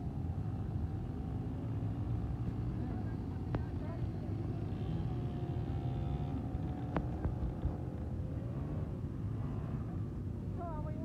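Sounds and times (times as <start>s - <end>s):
quad bike engine rumbling: 1.1s - 9.1s.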